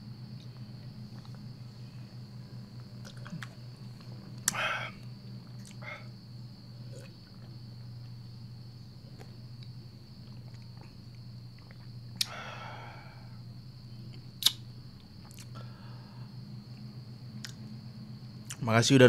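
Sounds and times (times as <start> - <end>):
steady low hum: 0.0 - 19.0
person chewing: 2.8 - 6.0, 6.8 - 8.2, 9.1 - 12.4, 15.2 - 15.6.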